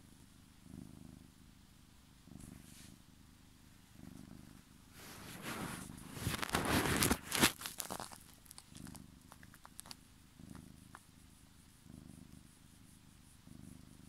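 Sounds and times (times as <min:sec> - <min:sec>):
cat purring: 0:00.0 - 0:14.0
phone rubbing against fur: 0:02.4 - 0:03.0, 0:05.0 - 0:08.2
small clicks: 0:07.4 - 0:11.1.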